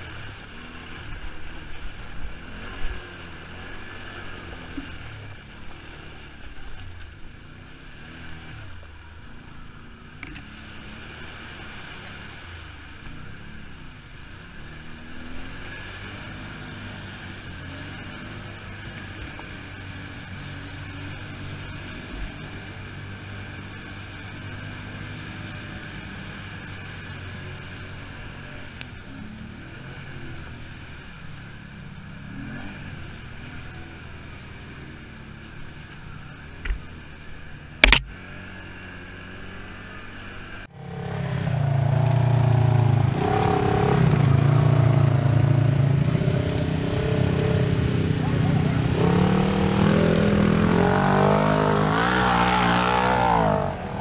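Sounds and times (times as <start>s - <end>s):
engine revving: 0.0s - 8.8s, 10.2s - 54.0s
off-road vehicle engine running: 0.0s - 54.0s
sharp knock: 37.8s - 38.1s.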